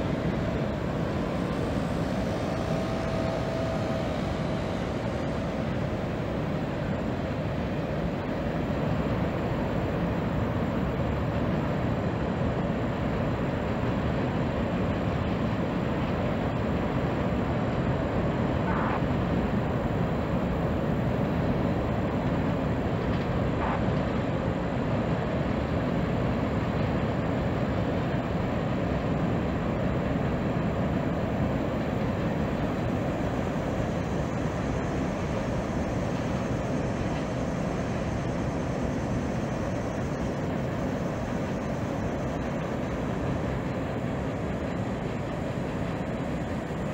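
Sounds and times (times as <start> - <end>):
distant freight train rumbling: 0.0 - 10.4.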